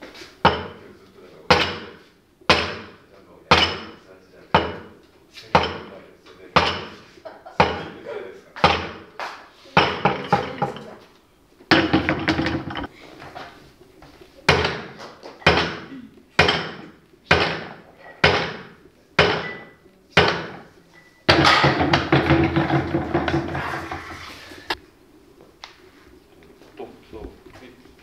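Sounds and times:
barbell clanking on box: 11.7s - 12.9s, 21.3s - 24.0s
heavy weight clattering: 11.7s - 12.9s.

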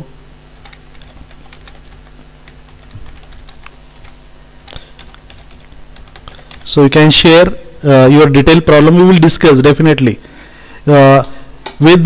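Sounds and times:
computer keyboard typing: 0.6s - 7.0s.

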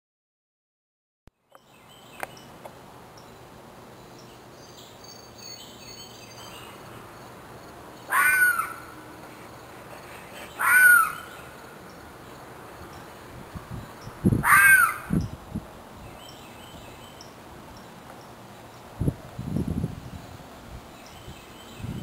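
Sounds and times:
harsh animal calls: 8.1s - 9.0s, 10.0s - 11.5s, 14.4s - 15.2s.

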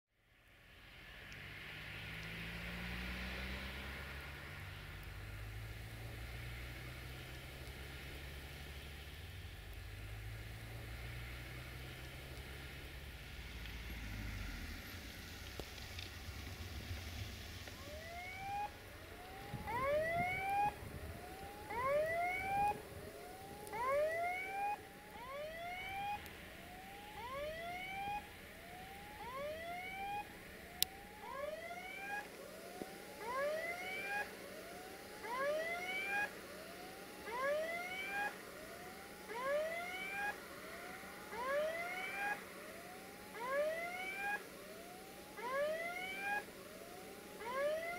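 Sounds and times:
level crossing warning whoops: 17.8s - 34.3s.

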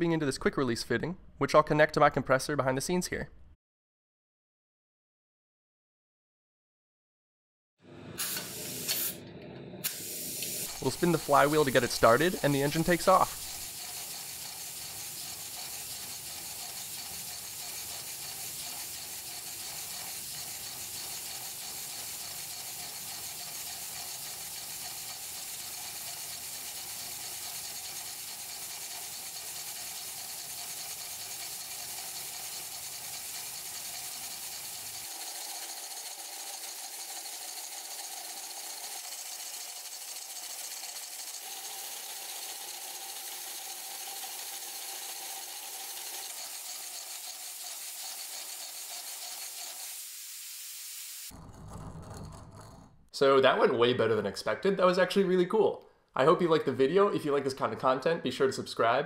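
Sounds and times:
air engine hissing and clattering: 9.8s - 35.7s.

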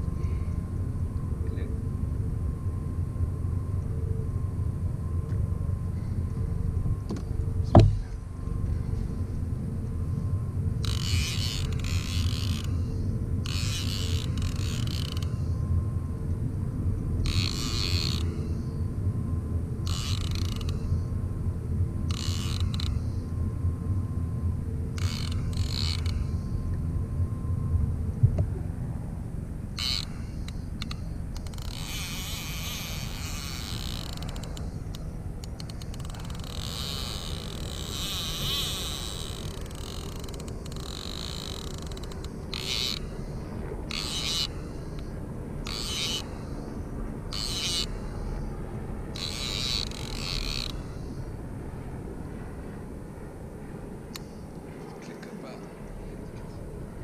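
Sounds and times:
fishing reel drag buzzing: 10.8s - 15.7s, 17.2s - 18.8s, 19.8s - 21.1s, 22.0s - 23.3s, 24.9s - 26.6s, 29.7s - 51.4s.

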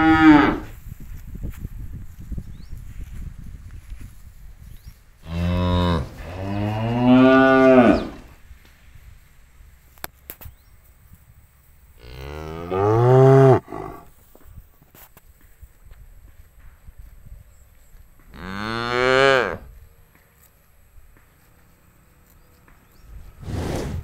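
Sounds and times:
cattle mooing: 5.3s - 8.2s.

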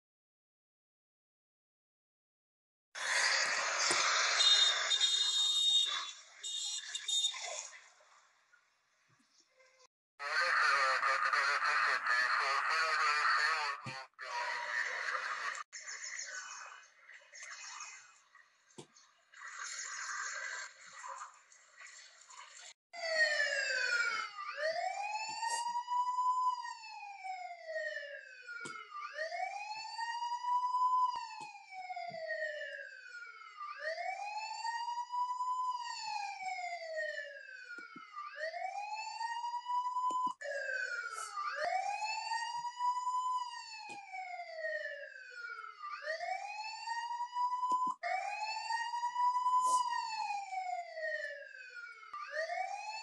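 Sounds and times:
police siren wailing: 3.0s - 7.7s, 10.2s - 15.7s, 23.0s - 53.0s.

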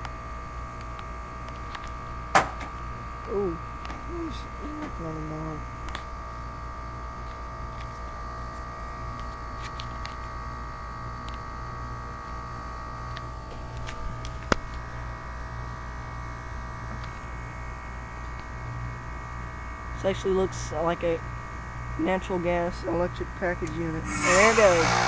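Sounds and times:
heat pump compressor humming: 0.0s - 9.6s, 23.7s - 25.0s.

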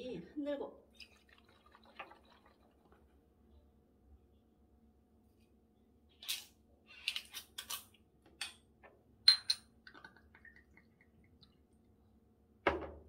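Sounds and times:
liquid glugging into glass: 0.9s - 3.1s
glass clinks: 9.3s - 9.6s
bottle thud on table: 12.7s - 13.0s.

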